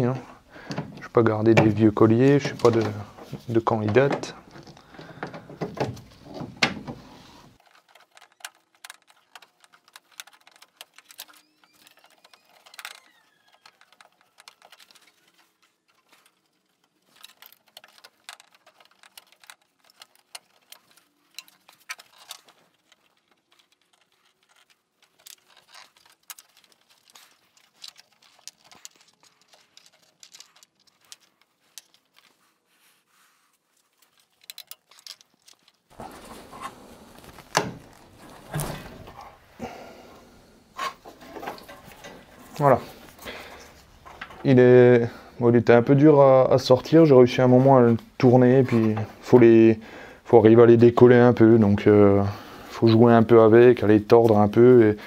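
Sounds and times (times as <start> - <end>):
pliers clicking and scraping on clamp: 34.0 - 35.9.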